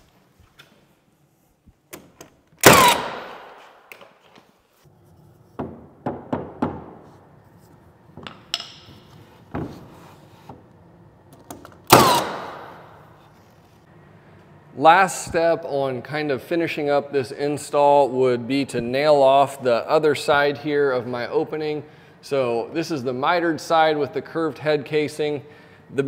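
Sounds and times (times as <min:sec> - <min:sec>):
nail gun firing: 0:02.6 - 0:03.6, 0:11.9 - 0:12.8.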